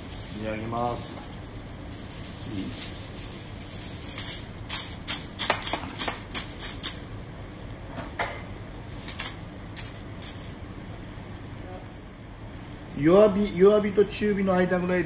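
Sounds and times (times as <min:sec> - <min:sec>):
aluminium foil crinkling: 0:00.0 - 0:07.0, 0:09.0 - 0:10.6.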